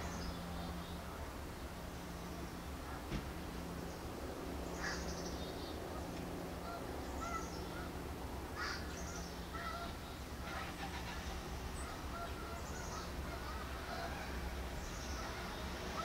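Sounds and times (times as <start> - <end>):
distant birds calling: 3.7 - 16.0.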